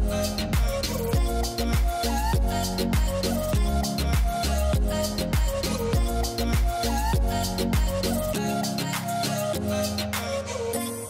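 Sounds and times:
deep kick drums: 0.0 - 8.0
background music with beat: 0.0 - 11.0.

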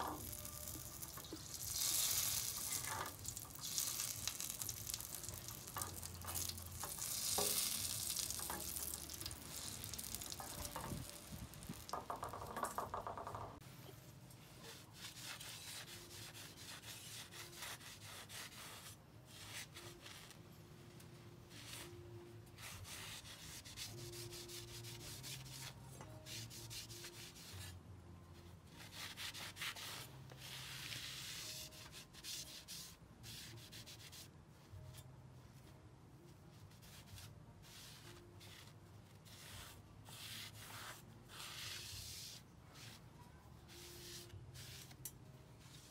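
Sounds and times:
cloth wiping along steel blade: 36.7 - 45.9.

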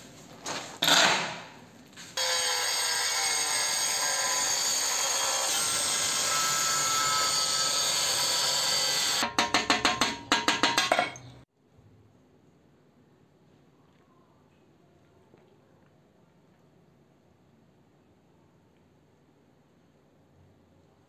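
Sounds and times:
angle grinder cutting tile: 2.2 - 10.8.

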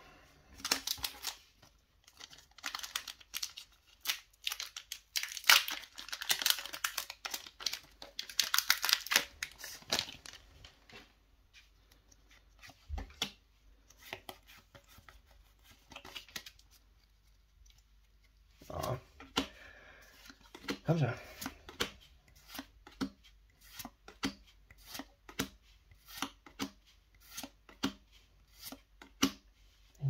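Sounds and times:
foil wrapper tearing and crinkling: 0.6 - 1.4, 2.0 - 10.4
cards rustling and clicking: 0.6 - 29.5.

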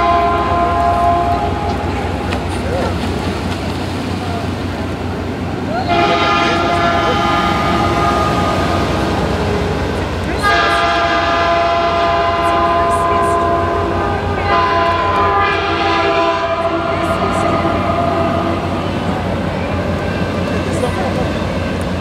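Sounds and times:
locomotive air horn blasts: 0.0 - 2.1, 5.9 - 9.4, 10.4 - 18.8
passing train rumble: 0.0 - 22.0.

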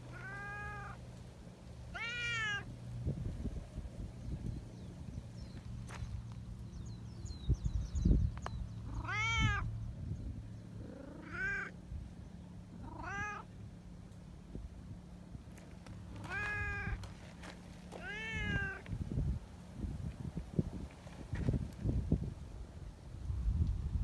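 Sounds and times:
cats meowing: 0.0 - 1.0, 1.9 - 2.7, 8.9 - 9.7, 10.8 - 11.8, 12.8 - 13.5, 16.1 - 17.1, 17.9 - 18.8.

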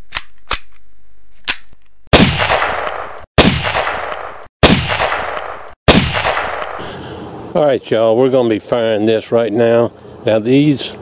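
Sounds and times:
loud gunshots with ringing tail: 2.1 - 6.9.

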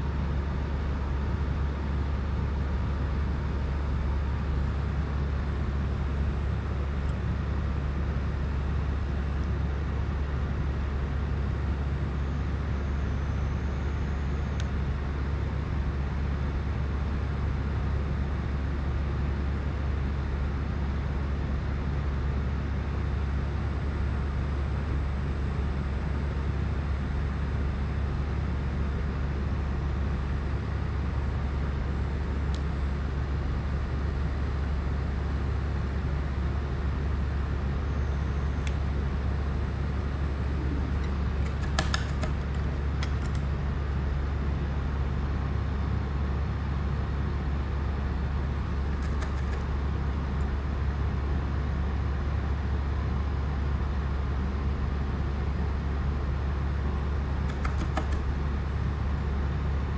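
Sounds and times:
low droning hum: 29.9 - 52.9.

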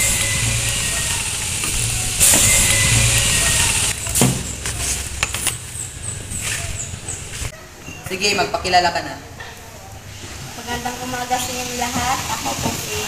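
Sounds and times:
low rumble with hiss: 0.0 - 7.5.

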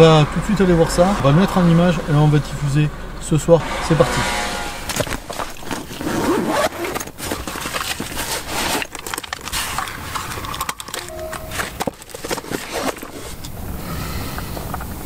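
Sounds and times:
zipper rasping: 4.2 - 13.5
fabric rustling: 4.8 - 10.6
hard case clicks and scrapes: 4.9 - 13.6.

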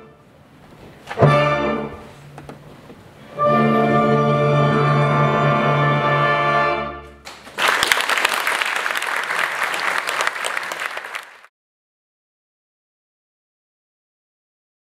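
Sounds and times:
audience applauding: 7.2 - 11.5.

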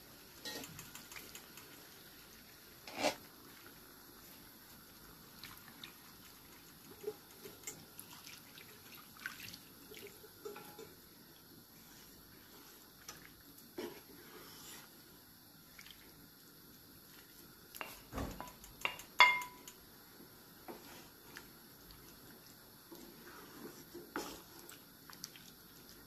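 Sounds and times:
utensils and dishes clinking: 0.4 - 0.9, 10.4 - 11.0, 18.4 - 19.7.

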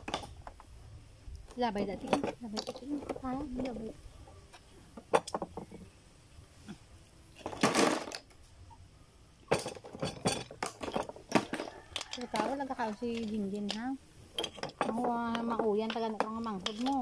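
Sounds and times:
oyster shells clattering: 9.5 - 17.0.

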